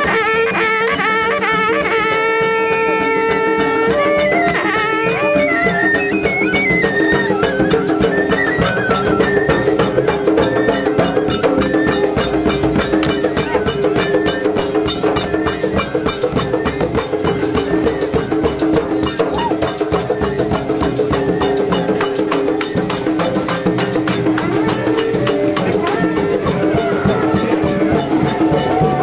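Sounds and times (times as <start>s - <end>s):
folk music with drums: 0.0s - 29.0s
jingling percussion: 0.0s - 29.0s.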